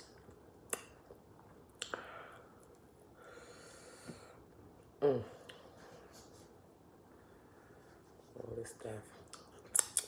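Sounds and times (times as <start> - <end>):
soft breath: 1.9 - 4.6.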